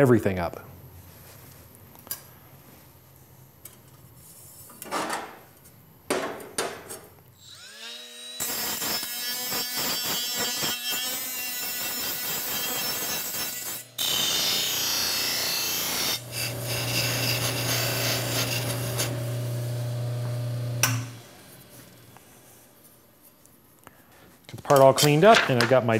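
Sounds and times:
die grinder whining and grinding: 0:07.4 - 0:13.1, 0:13.8 - 0:21.5
bench buffer humming: 0:16.2 - 0:22.3.

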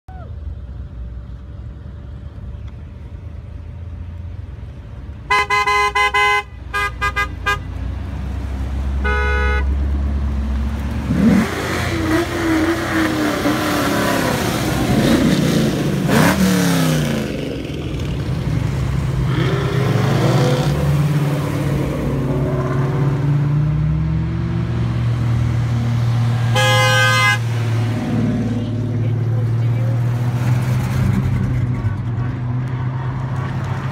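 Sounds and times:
car engines rumbling and revving: 0:00.1 - 0:33.9
car horns honking: 0:05.3 - 0:07.8, 0:09.0 - 0:09.8, 0:26.4 - 0:27.7.

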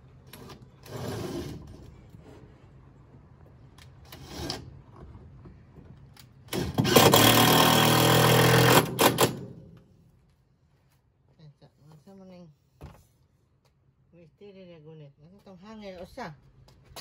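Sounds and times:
cordless drill drilling into wood: 0:06.5 - 0:09.4.

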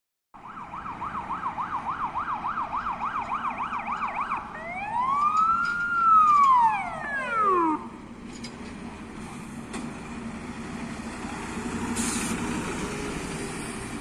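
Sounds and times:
fire engine siren: 0:00.4 - 0:08.1.

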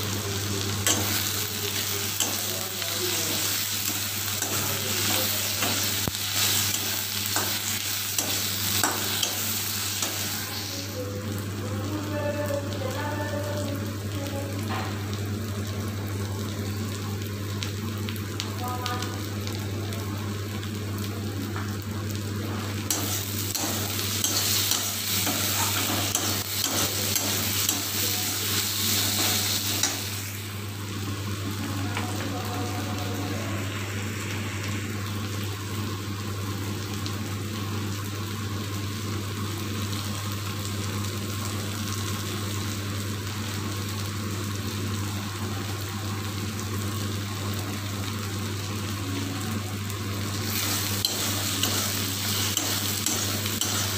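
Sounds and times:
steady low hum: 0:00.0 - 0:36.9
onions sizzling in hot oil: 0:00.0 - 0:53.9.

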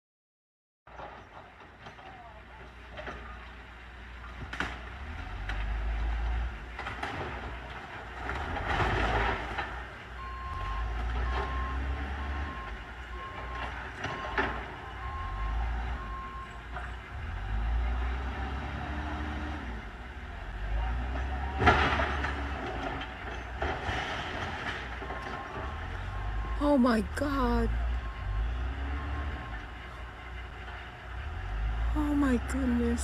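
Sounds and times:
diesel engine rumbling: 0:00.9 - 0:33.0
reversing alarm beeping: 0:10.2 - 0:16.6.

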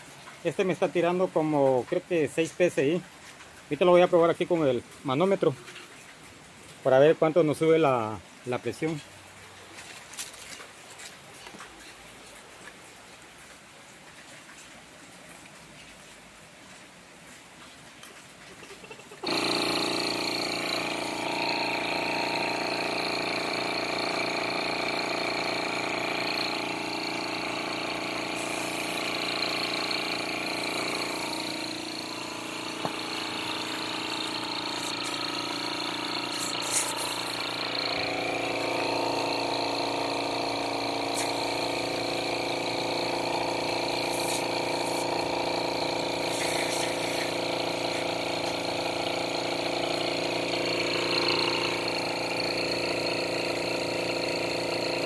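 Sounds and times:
air compressor humming and whining: 0:19.2 - 0:55.0.

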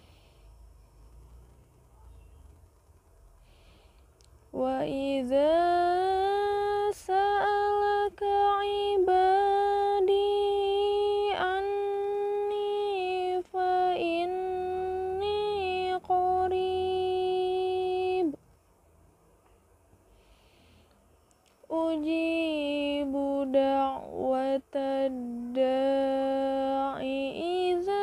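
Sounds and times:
woman reciting melodically: 0:04.5 - 0:18.4, 0:21.6 - 0:28.0.

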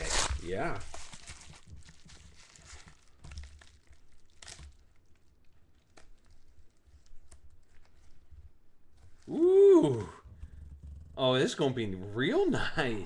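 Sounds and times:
paper mailer tearing: 0:00.0 - 0:01.4.

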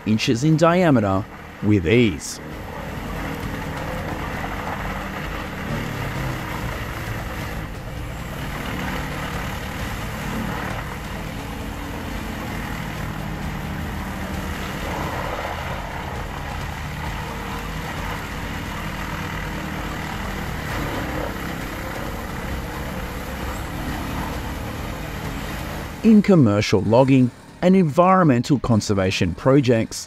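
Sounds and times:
tree chipper chipping: 0:00.9 - 0:26.1.

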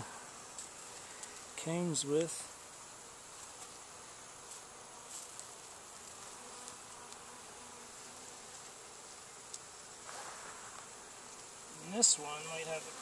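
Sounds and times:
bees buzzing: 0:00.0 - 0:13.0.

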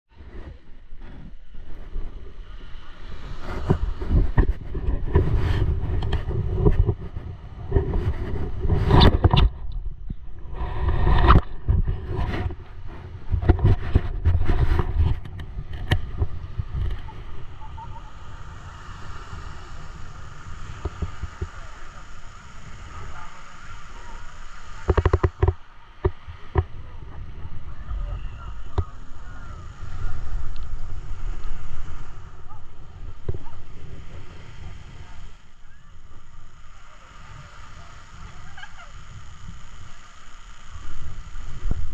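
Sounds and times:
wind buffeting microphone: 0:00.1 - 0:41.9
faint voices: 0:15.7 - 0:41.9.

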